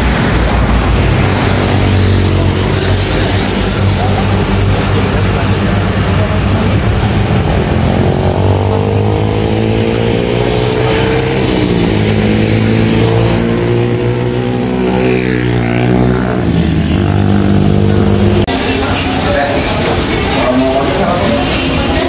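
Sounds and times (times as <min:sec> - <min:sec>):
vehicle engines running: 0:00.0 - 0:22.0
vehicles passing: 0:00.0 - 0:22.0.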